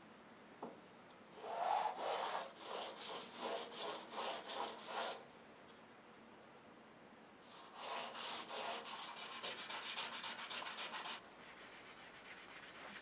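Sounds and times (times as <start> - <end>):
metal scratching on sandpaper: 7.5 - 13.0.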